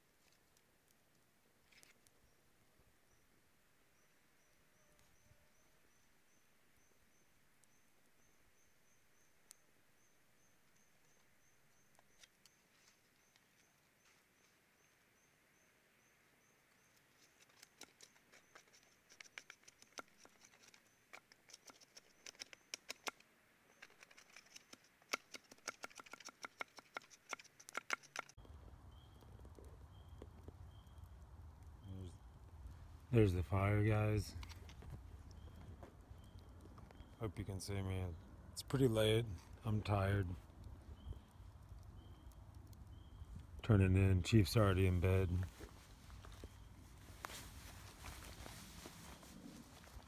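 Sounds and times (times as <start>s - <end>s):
campfire crackling and popping: 23.9s - 50.0s
low-pitched chirp: 28.4s - 45.3s, 46.0s - 49.6s.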